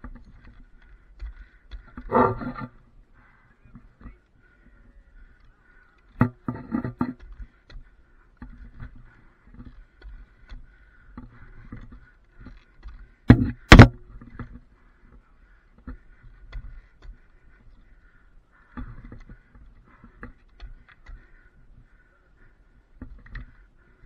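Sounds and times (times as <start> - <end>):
boots knocking on wooden pole: 13.3 - 14.0.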